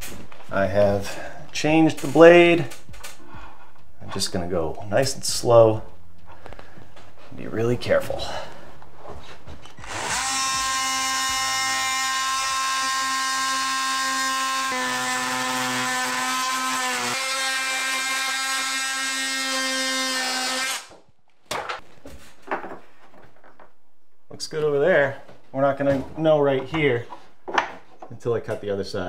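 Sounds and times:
multi-tool cutting wood: 0:09.8 - 0:21.1.

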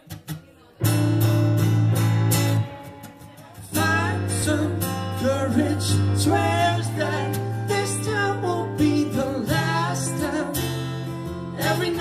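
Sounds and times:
acoustic guitars strumming: 0:00.0 - 0:12.0
person singing: 0:03.4 - 0:12.0.

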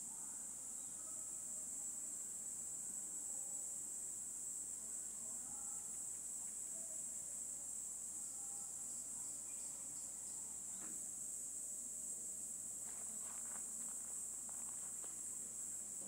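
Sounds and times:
insects chirring: 0:00.0 - 0:16.0
faint short rustle: 0:12.8 - 0:15.5.

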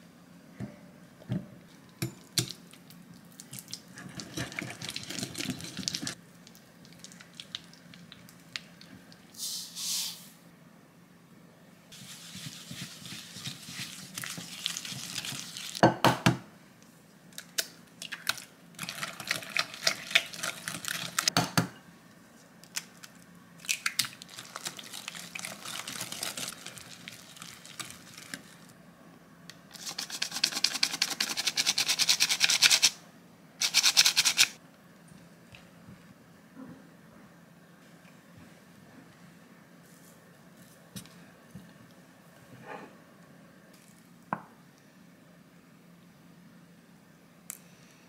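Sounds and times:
whisk beating batter in glass bowl: 0:12.0 - 0:14.9.

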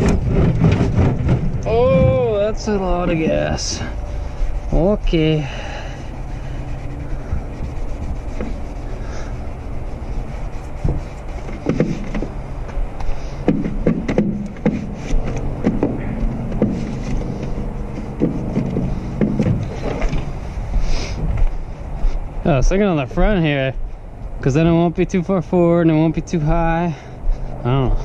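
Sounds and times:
scrapes and knocks: 0:00.0 - 0:05.4, 0:06.0 - 0:20.5
truck engine idling: 0:00.0 - 0:24.5.

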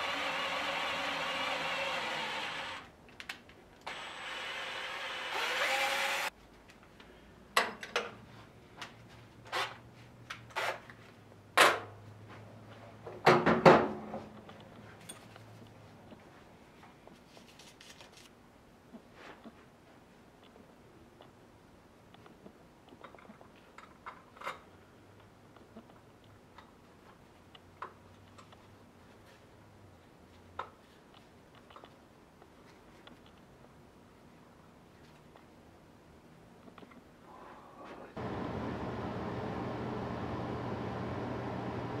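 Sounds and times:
cordless drill running: 0:00.0 - 0:02.9, 0:03.9 - 0:06.3
tools knocking and clicking: 0:07.6 - 0:08.2.

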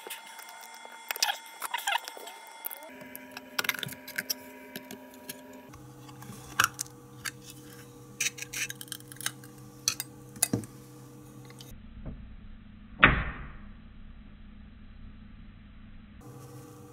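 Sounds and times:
screwdriver and knife scraping metal: 0:00.0 - 0:10.5
steady low hum: 0:00.0 - 0:16.9.

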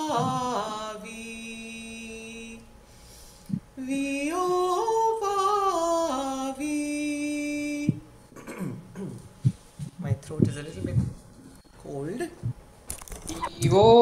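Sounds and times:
woman singing vocal exercise: 0:00.0 - 0:02.6.

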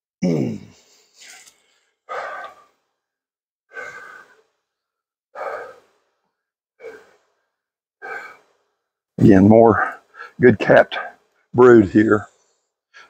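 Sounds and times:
man breathing heavily: 0:00.7 - 0:02.9, 0:03.7 - 0:04.7, 0:05.3 - 0:06.2, 0:06.8 - 0:08.9, 0:09.9 - 0:10.4.

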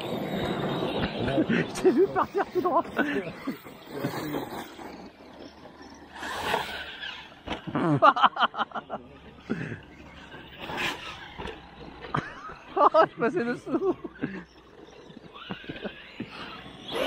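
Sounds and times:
toy truck motors revving: 0:00.0 - 0:17.0
tyres on dirt: 0:00.0 - 0:17.0.

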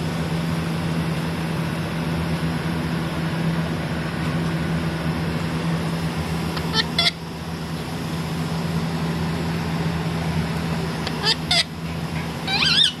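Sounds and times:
steady low hum: 0:00.0 - 0:13.0
parakeet squawking and chattering: 0:06.5 - 0:07.2, 0:11.0 - 0:13.0.

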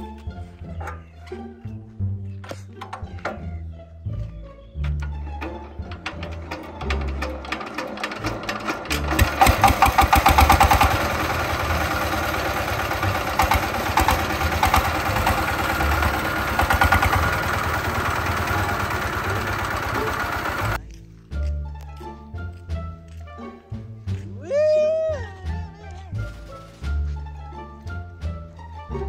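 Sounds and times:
diesel tractor engine idling: 0:04.9 - 0:20.8.

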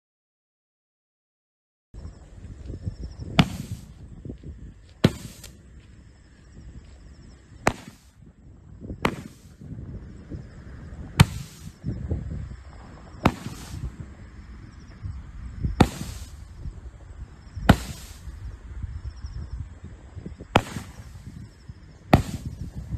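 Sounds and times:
firework bangs: 0:03.3 - 0:03.9, 0:05.0 - 0:05.6, 0:07.6 - 0:08.2, 0:09.0 - 0:09.6, 0:11.1 - 0:11.8, 0:13.1 - 0:14.1, 0:15.7 - 0:16.6, 0:17.6 - 0:18.5, 0:20.4 - 0:21.5, 0:22.1 - 0:22.9.

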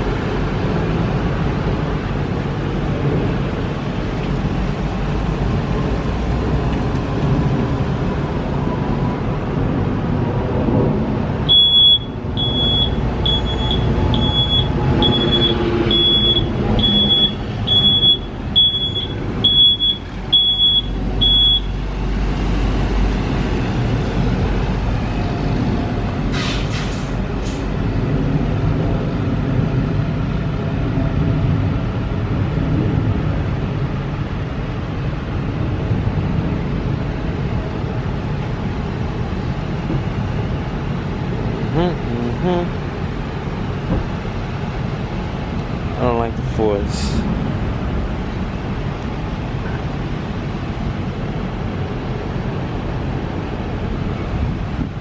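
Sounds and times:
heavy vehicle engine rumbling: 0:00.0 - 0:55.0
reversing beeper: 0:11.5 - 0:21.8
air hiss bursts: 0:26.3 - 0:27.7.

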